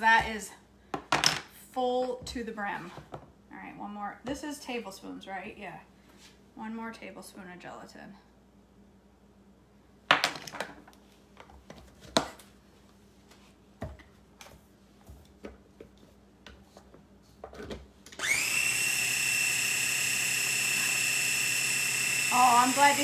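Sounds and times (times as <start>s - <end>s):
food chopper motor whining: 18.2s - 23.0s.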